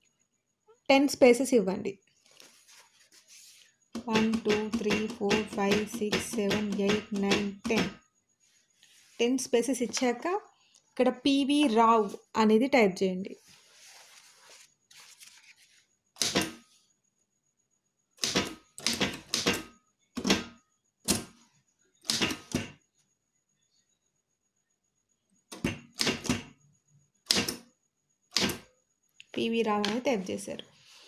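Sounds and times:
typewriter keys striking: 4.0 - 7.9, 18.2 - 20.5, 22.1 - 22.7.

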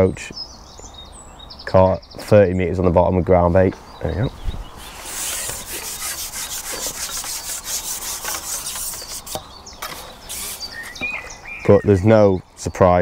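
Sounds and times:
close rubbing and scraping: 4.8 - 11.0.

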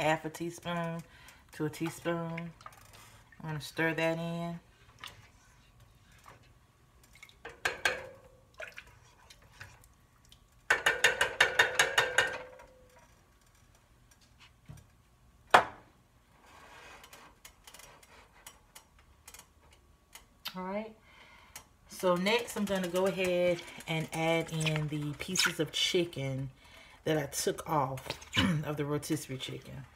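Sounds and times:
spoon knocking against metal pot: 7.5 - 8.2, 10.7 - 12.5
spoon clacking on stovetop: 10.7 - 12.5
faint scraping of pot: 16.4 - 18.4.

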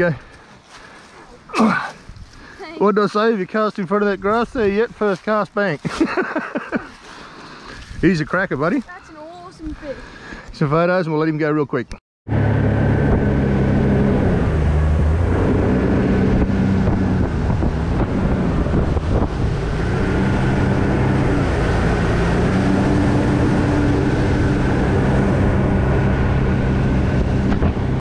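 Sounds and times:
wind buffeting microphone: 2.0 - 2.6, 7.7 - 10.0, 13.0 - 28.0
outboard motor running: 12.3 - 28.0.

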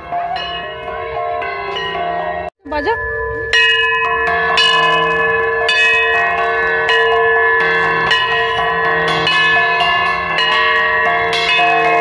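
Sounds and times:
tuned bells ringing: 0.0 - 12.0
steady held tone: 2.6 - 9.0.

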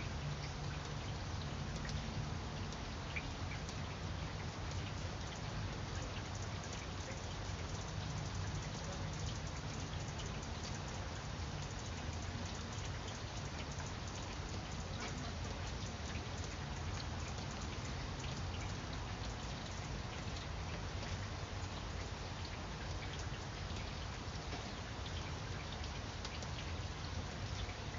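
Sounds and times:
rain pattering on leaves: 0.0 - 27.9.

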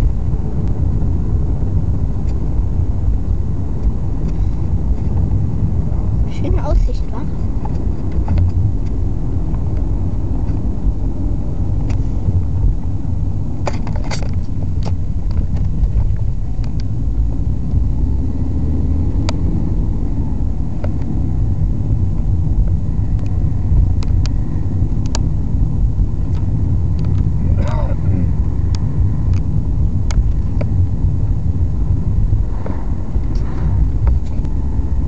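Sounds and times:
engine and road noise rumble: 0.0 - 35.0.

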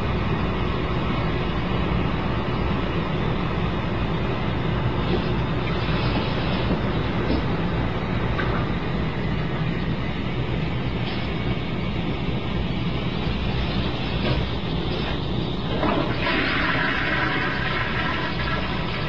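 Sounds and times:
toilet tank refilling: 14.3 - 19.0.

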